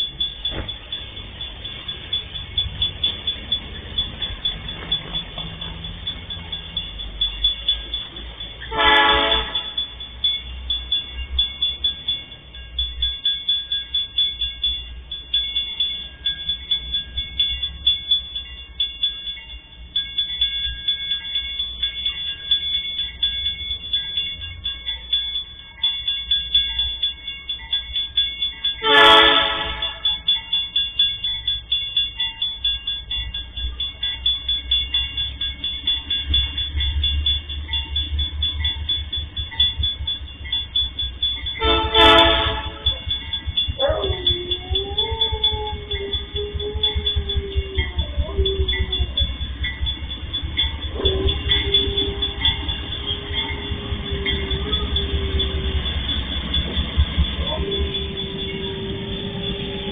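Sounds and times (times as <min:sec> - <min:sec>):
crossing warning bell dinging: 0:00.0 - 0:59.9
locomotive engine rumble: 0:00.0 - 0:59.9
locomotive horn blasts: 0:08.7 - 0:09.9, 0:28.8 - 0:30.3, 0:41.6 - 0:43.1, 0:50.9 - 0:55.8.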